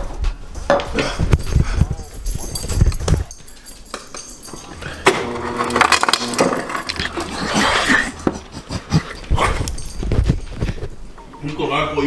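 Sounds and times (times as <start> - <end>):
ice cubes clattering from dispenser: 5.0 - 8.2
man whimpering: 7.1 - 9.7.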